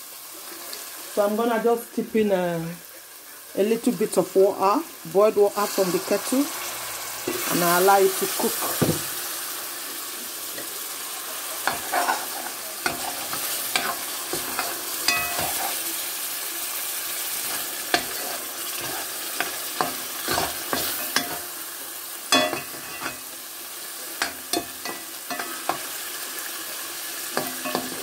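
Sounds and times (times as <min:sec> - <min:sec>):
stew sizzling and bubbling: 0:00.0 - 0:28.0
metal spoon scraping pot: 0:11.6 - 0:15.8.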